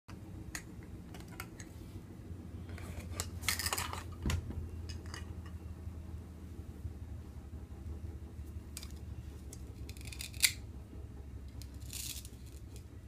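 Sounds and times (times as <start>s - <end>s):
plastic toys clicking and clattering: 0.5s - 1.7s, 3.0s - 4.2s, 8.8s - 10.6s, 11.6s - 12.9s
plastic toys scraping and rattling: 0.6s - 1.8s, 2.6s - 4.2s, 8.8s - 10.6s, 11.5s - 13.0s.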